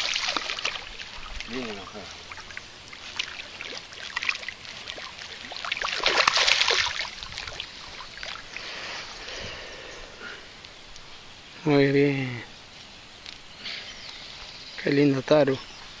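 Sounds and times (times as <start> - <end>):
fish thrashing and splashing: 0.0 - 8.6.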